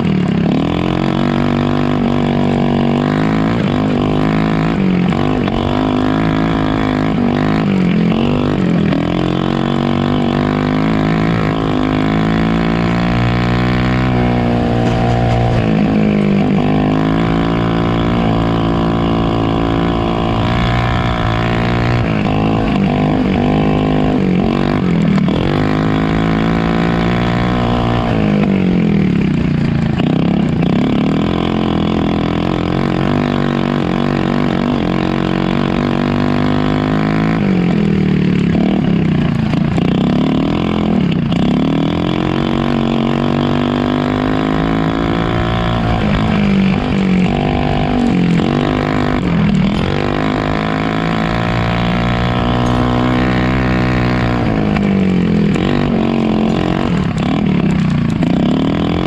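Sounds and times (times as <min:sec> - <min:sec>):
small engine revving: 0:00.0 - 0:59.0.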